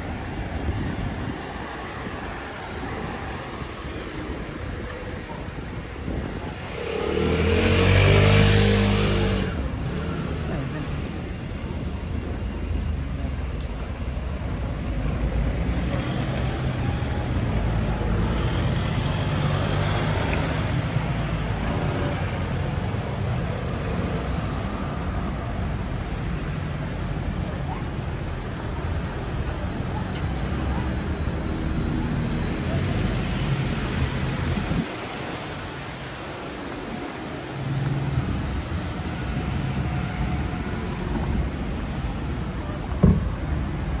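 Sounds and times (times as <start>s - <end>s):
traffic noise: 0.0s - 44.0s
short thump: 43.0s - 43.4s.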